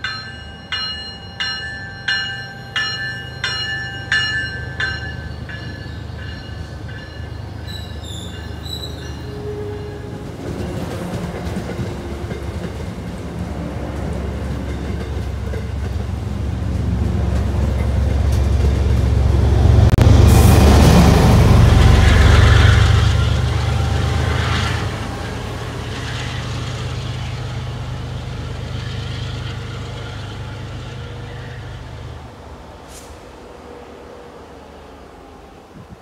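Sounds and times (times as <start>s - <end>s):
train bell ringing: 0.0s - 10.3s
rumble of passing train coaches: 0.0s - 36.0s
high squeals: 5.8s - 10.1s.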